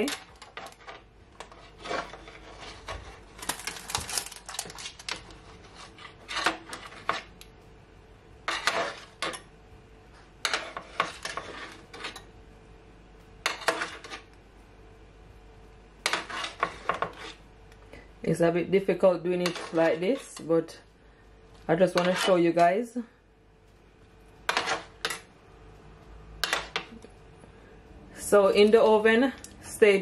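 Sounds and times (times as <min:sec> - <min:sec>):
metal spoon scraping a roasting tray: 0:00.0 - 0:07.4, 0:08.4 - 0:09.5, 0:10.4 - 0:12.3, 0:13.4 - 0:14.4, 0:16.0 - 0:17.5, 0:19.3 - 0:20.7, 0:21.8 - 0:22.7, 0:24.4 - 0:25.3, 0:26.4 - 0:27.0.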